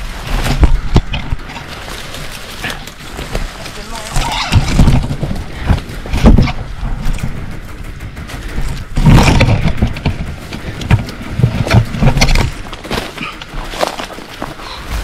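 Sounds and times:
footsteps through undergrowth: 0.0 - 7.1, 10.4 - 15.0
brush crackling and rustling: 0.0 - 15.0
wind buffeting on microphone: 2.6 - 13.8.

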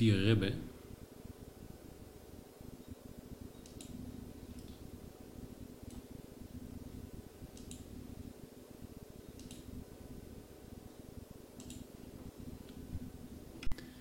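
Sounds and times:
low steady hum: 0.0 - 14.0
computer mouse clicking: 3.6 - 4.8, 7.5 - 7.9, 9.3 - 9.7, 11.6 - 11.9.

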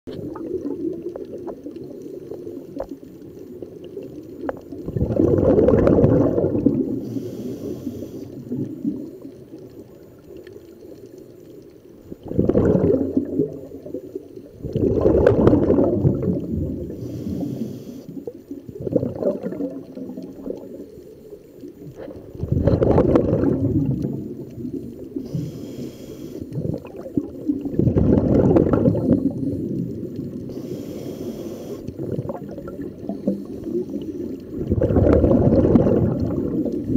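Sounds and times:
exhaled bubbles rumbling underwater: 0.1 - 36.9
regulator inhale hiss: 6.8 - 8.6, 16.8 - 18.4, 25.0 - 26.7, 29.0 - 32.0.

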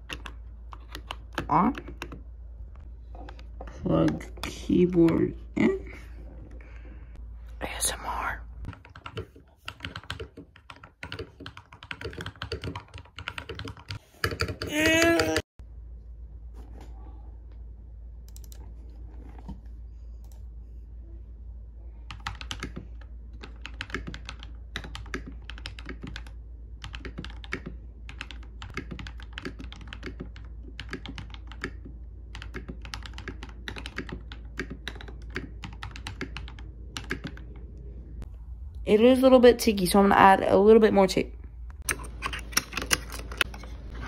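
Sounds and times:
mechanical keyboard typing: 0.0 - 2.2, 8.7 - 15.4, 22.1 - 37.5.

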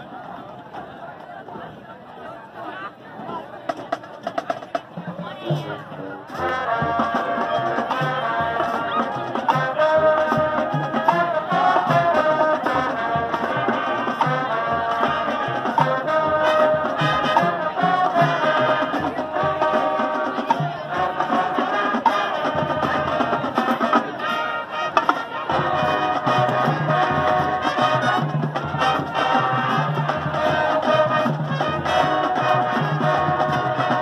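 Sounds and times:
marching band playing: 3.2 - 34.0
steady drum beat: 3.7 - 34.0.

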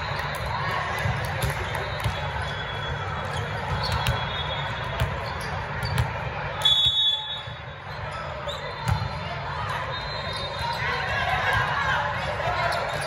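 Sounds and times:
volleyball hits and bounces: 0.2 - 6.8, 8.7 - 9.3
referee's whistle blast: 6.6 - 7.6.

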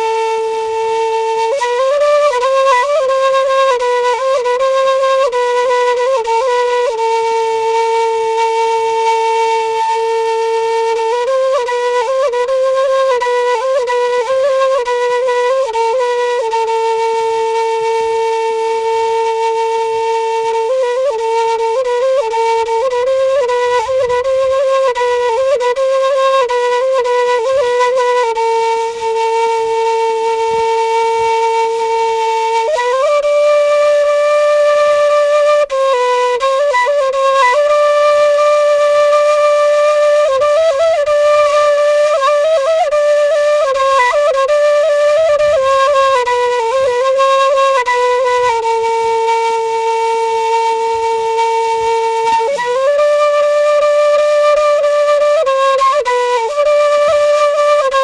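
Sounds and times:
end-blown flute melody: 0.0 - 58.0.

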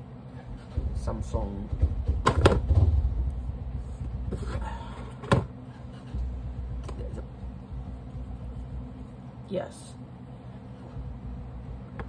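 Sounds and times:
low rumble: 2.6 - 4.7.

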